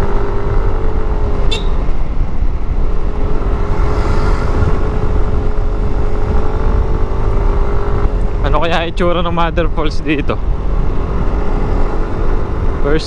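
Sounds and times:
scooter engine humming: 0:00.0 - 0:13.0
wind rumble on microphone: 0:00.0 - 0:13.0.

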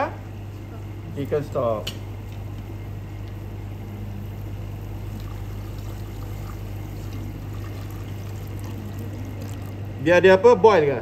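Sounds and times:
low hum: 0:02.1 - 0:10.0
stock pouring into a metal pot: 0:05.3 - 0:09.8.

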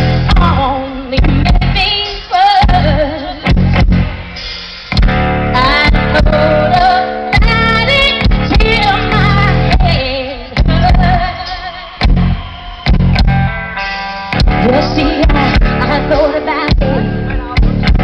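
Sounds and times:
electric guitar and bass: 0:00.0 - 0:18.0
person singing: 0:14.5 - 0:17.9.

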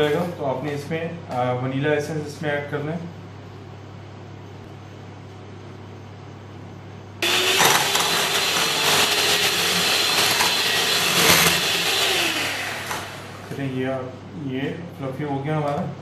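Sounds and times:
electric hand mixer whining: 0:07.2 - 0:13.6.

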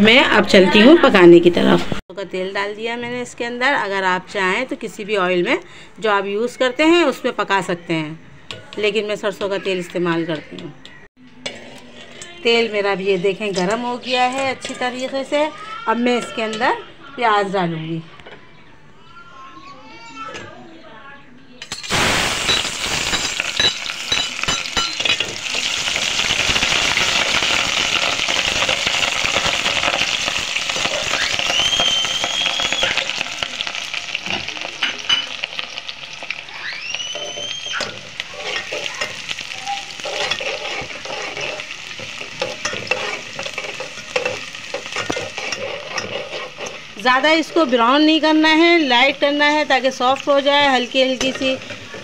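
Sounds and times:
onions sizzling in oil: 0:21.8 - 0:52.0
spoon scraping and tapping pot: 0:40.0 - 0:46.8.

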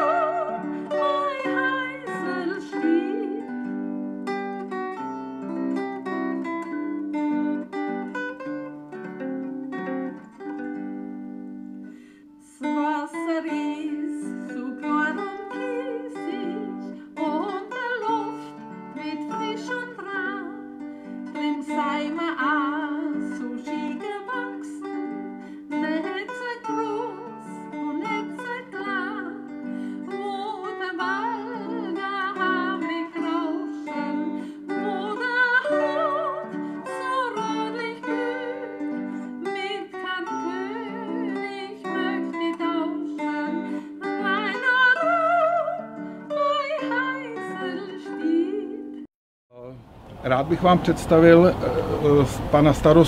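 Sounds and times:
person singing wavering melody: 0:00.0 - 0:03.6
acoustic guitar picking: 0:00.0 - 0:12.0, 0:12.8 - 0:48.4.

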